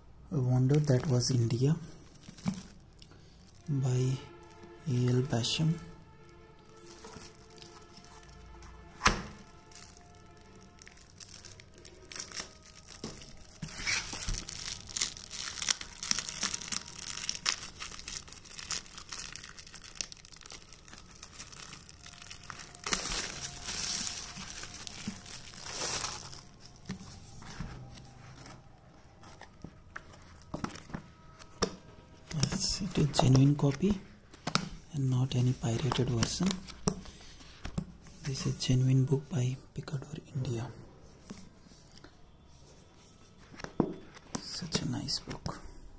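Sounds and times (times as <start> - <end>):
plastic wrap crinkling: 0.6 - 4.4, 6.5 - 38.5.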